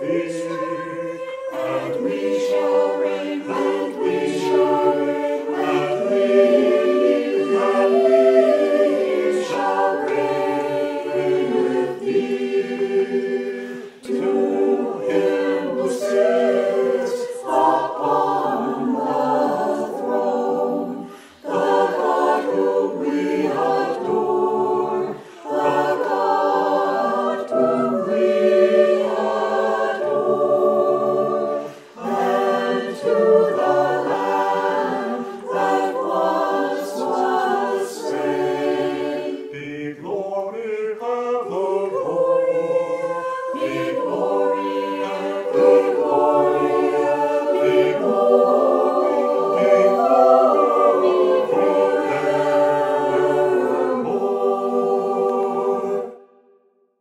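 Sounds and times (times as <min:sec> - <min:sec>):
choir singing a hymn: 0:00.0 - 0:56.5.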